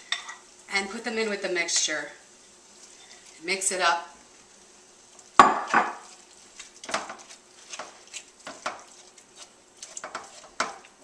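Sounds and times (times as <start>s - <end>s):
utensil scraping a frying pan: 2.4s - 3.4s, 5.5s - 11.0s.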